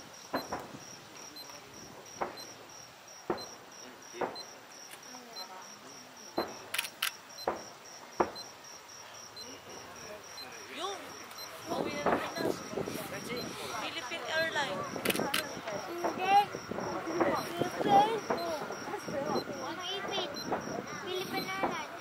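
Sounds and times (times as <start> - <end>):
crickets chirping: 0.0 - 22.0
distant firework bangs: 1.7 - 4.5, 6.3 - 6.7, 7.4 - 8.5, 11.5 - 22.0.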